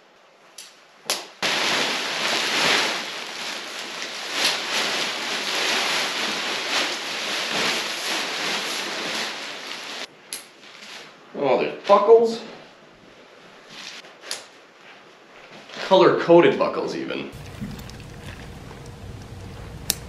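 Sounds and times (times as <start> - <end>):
nylon tent fly rustling: 1.4 - 11.3, 17.3 - 20.0.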